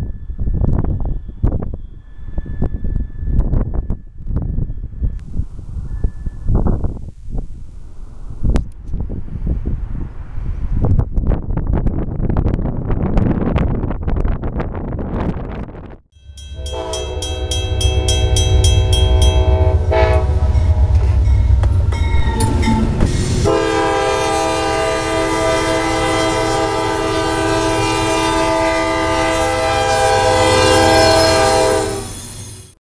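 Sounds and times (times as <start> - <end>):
low engine rumble: 16.2 - 25.8
train air horn: 16.5 - 21.6, 22.2 - 32.3.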